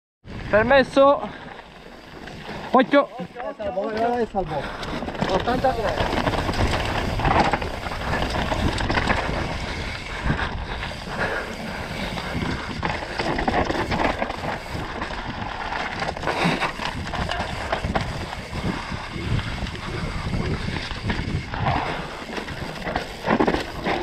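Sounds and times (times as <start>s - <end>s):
bike tyres on dirt and stones: 0.3s - 24.0s
wind buffeting microphone: 2.1s - 24.0s
bike knocks and rattles: 3.7s - 10.6s, 11.9s - 24.0s.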